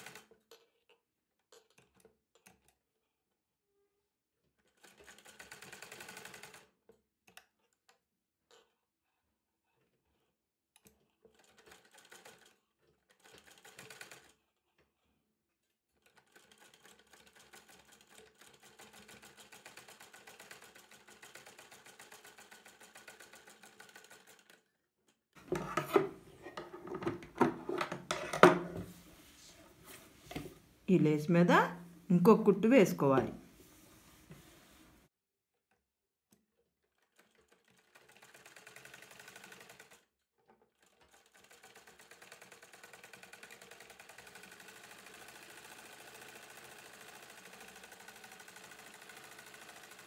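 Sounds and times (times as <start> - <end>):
sewing machine stitching: 0.0 - 0.9, 4.4 - 24.7, 25.3 - 28.9, 36.8 - 50.0.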